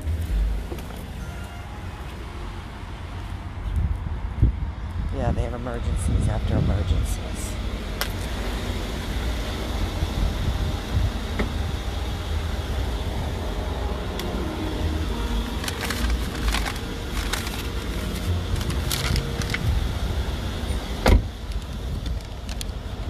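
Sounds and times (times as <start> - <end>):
steady low rumble: 2.5 - 23.0
paper envelope rustling: 15.6 - 19.7.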